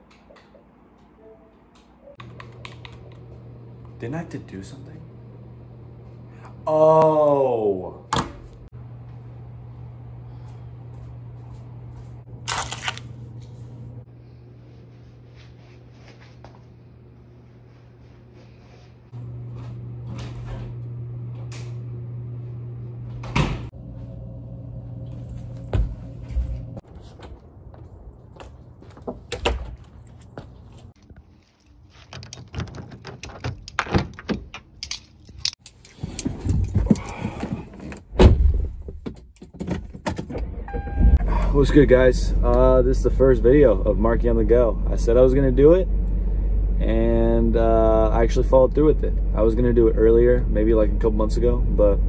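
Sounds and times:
low room hum: 0.0 - 29.0, 40.4 - 52.0.

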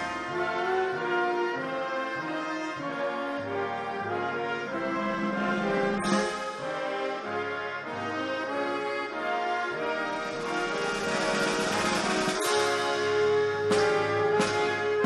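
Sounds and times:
brass ensemble playing chords: 0.0 - 15.0
sharp percussive hit: 6.0 - 6.7.

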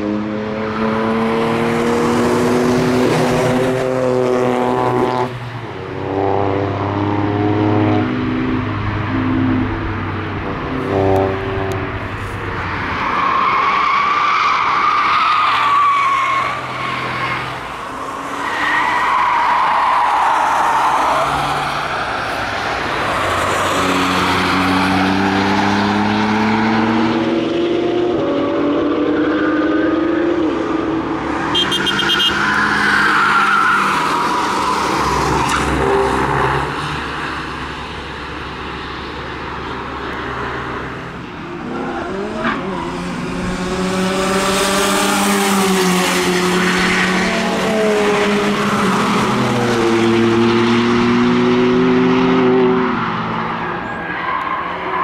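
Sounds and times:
car engines racing: 0.0 - 55.0
car engine accelerating: 41.6 - 53.6.

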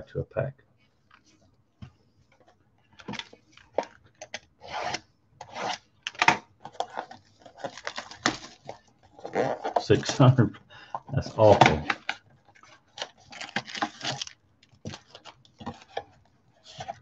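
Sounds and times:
box being torn open: 4.7 - 10.2, 12.9 - 15.4.

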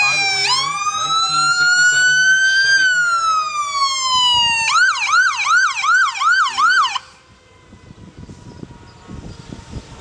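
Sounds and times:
ambulance siren yelping: 0.0 - 7.2.

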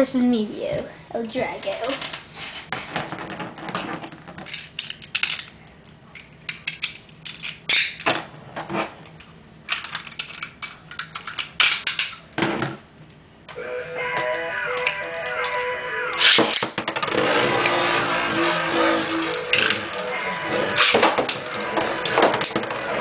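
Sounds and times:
music: 13.6 - 16.4, 17.2 - 23.0.

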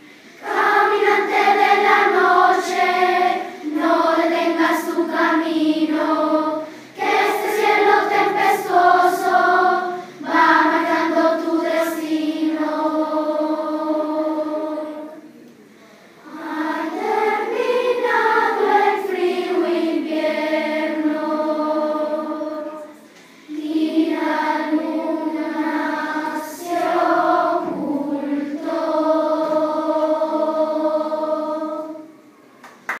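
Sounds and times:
children's choir singing: 0.0 - 15.4, 16.1 - 33.0.

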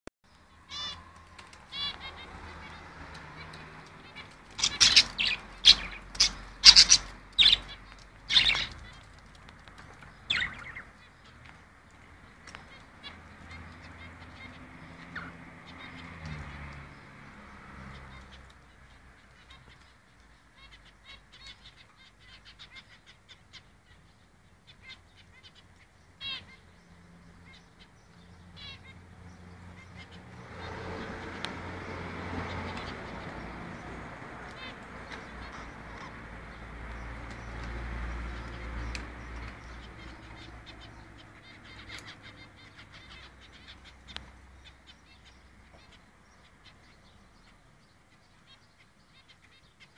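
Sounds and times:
budgerigars chirping and chattering: 0.5 - 49.9
budgerigars squawking: 0.6 - 1.1, 1.7 - 9.0, 10.2 - 11.1, 24.7 - 26.7, 29.7 - 36.3, 38.3 - 47.6.

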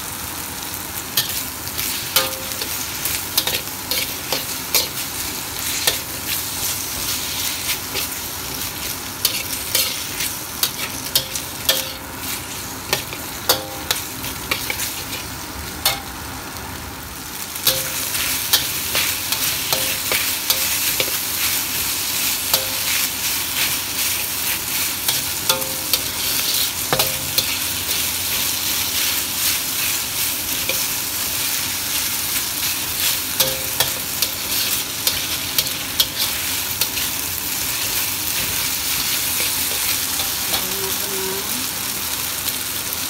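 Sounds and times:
meat sizzling in a wok: 0.0 - 43.0
wok ringing: 1.1 - 16.6, 17.6 - 29.2, 30.5 - 31.3, 32.9 - 41.6
metal spatula scraping a wok: 3.4 - 5.0, 9.2 - 15.3, 25.1 - 29.2, 33.4 - 37.1.

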